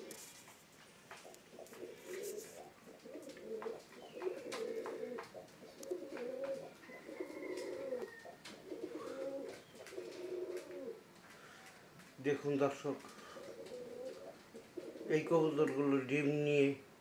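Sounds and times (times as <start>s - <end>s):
pigeons cooing: 0.0s - 0.4s, 1.1s - 11.9s, 13.0s - 15.5s
faint clicks: 7.5s - 12.2s.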